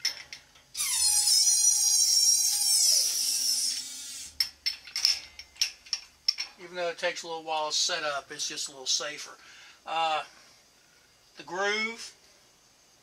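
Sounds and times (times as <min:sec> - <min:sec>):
metal-on-metal squeal: 0:00.8 - 0:04.4.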